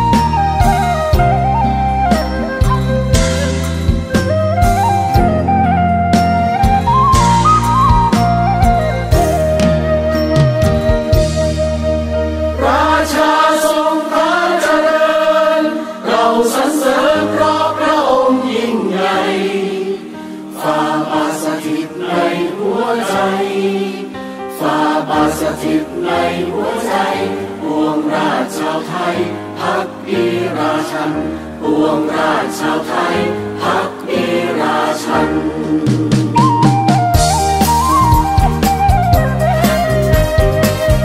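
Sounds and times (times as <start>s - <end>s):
slow bass line accompaniment: 0.0s - 12.6s, 36.2s - 41.0s
choir singing long gliding notes: 12.2s - 36.5s.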